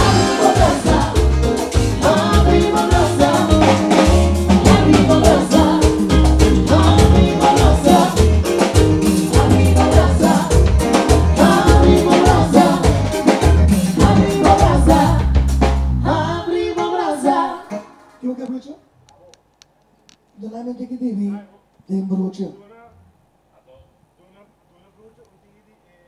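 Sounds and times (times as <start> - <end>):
person singing: 0.0 - 15.3
live band playing: 0.0 - 18.4.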